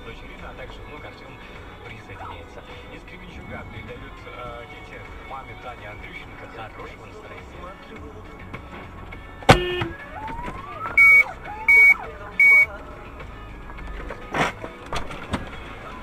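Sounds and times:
short high electronic beeps: 11.0 - 12.7.

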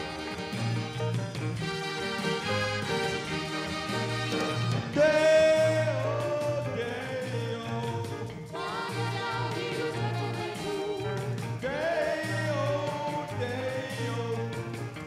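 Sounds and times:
band with pulsing bass beat: 0.0 - 15.0
woman singing pop song: 8.6 - 11.3.

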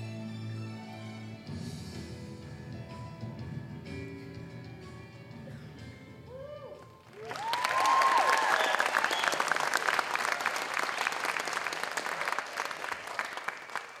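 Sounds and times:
music: 0.0 - 8.1
whoops and cheers: 6.3 - 9.7
audience applauding: 7.0 - 14.0.

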